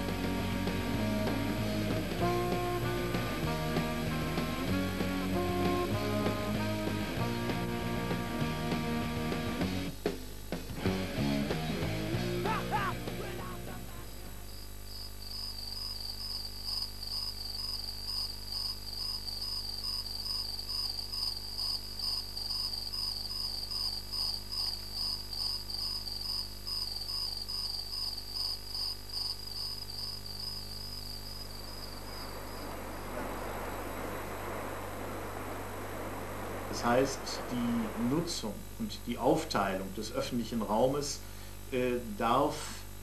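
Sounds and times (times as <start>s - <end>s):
broad steady rushing noise: 0.0s - 14.6s, 31.3s - 40.4s
insect chirping trill: 12.4s - 38.5s.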